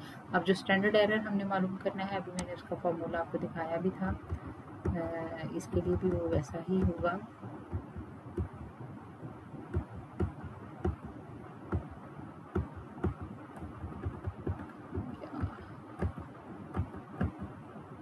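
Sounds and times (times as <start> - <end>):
low steady hiss: 0.0 - 18.0
computer mouse clicking: 12.6 - 17.6.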